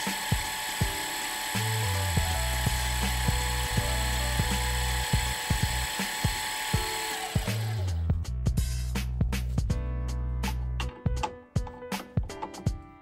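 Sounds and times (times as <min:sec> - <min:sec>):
milling machine hissing: 0:00.0 - 0:08.0
background music with beat: 0:00.0 - 0:13.0.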